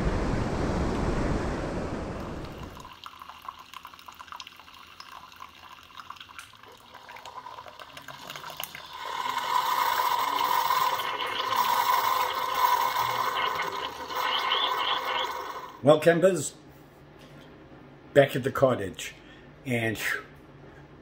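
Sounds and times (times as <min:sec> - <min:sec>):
steady hum with held tone: 0:00.0 - 0:21.0
faint crackling and fizzing: 0:02.1 - 0:15.8
coffee pouring into a mug: 0:02.5 - 0:15.8.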